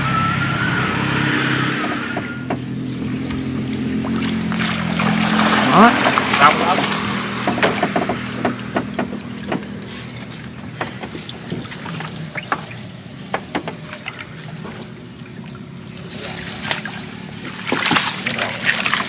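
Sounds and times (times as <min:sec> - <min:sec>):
boat motor humming: 0:00.0 - 0:19.0
sharp knocks and clicks: 0:02.1 - 0:04.2, 0:06.0 - 0:14.9.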